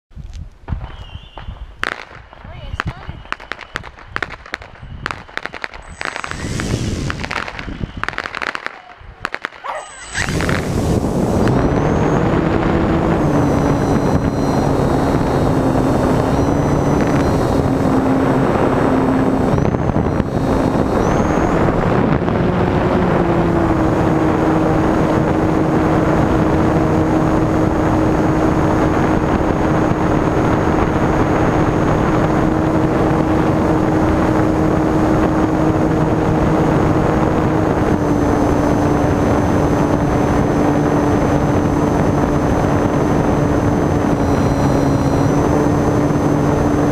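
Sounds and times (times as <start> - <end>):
wind rush: 5.8 - 46.9
electric plane motor whine: 10.0 - 46.9.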